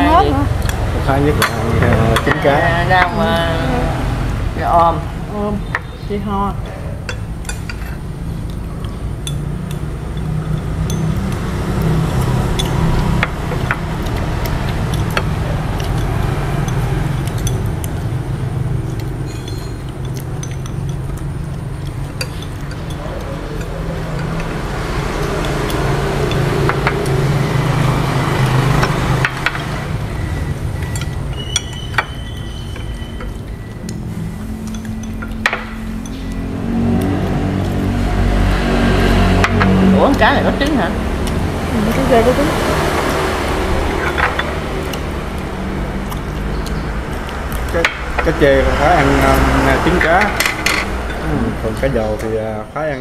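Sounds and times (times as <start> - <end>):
steady low hum: 0.0 - 53.0
chopsticks clinking on bowls: 0.6 - 3.2, 6.6 - 27.3, 30.8 - 37.8, 43.8 - 52.4.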